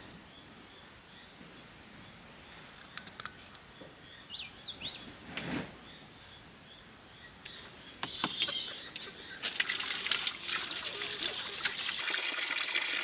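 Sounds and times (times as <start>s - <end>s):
bird chirps: 3.8s - 5.2s, 5.8s - 9.5s
water splashing in a basin: 9.0s - 13.0s.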